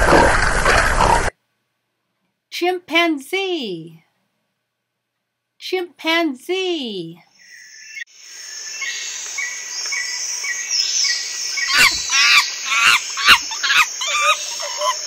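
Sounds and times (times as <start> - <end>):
small chirps of birds or insects: 7.2 - 15.0
chimpanzee calling: 11.6 - 15.0.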